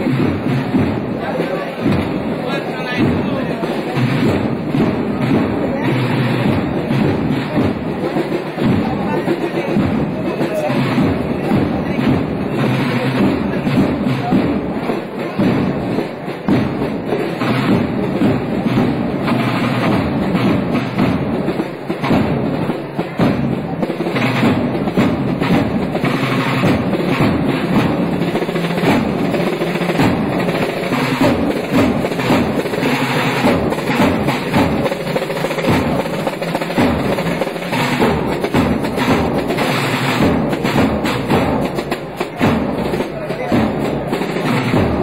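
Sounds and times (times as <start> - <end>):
marching band drums: 0.0 - 45.0
snare rolls: 10.5 - 45.0.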